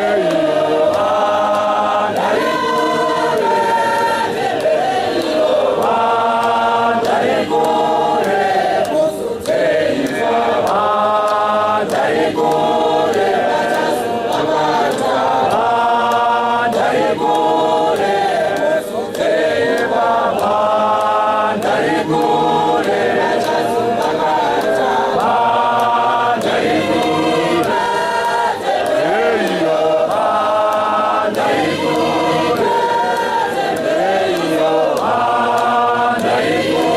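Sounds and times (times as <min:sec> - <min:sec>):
choir singing a hymn a cappella: 0:00.0 - 0:36.9.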